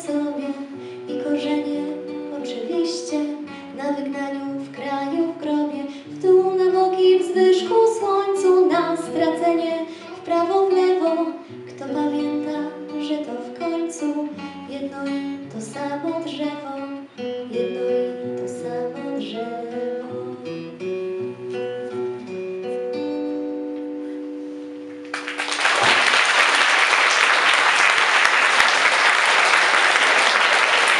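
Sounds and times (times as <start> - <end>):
acoustic guitar picking: 0.1 - 25.3
audience applause: 25.0 - 30.9.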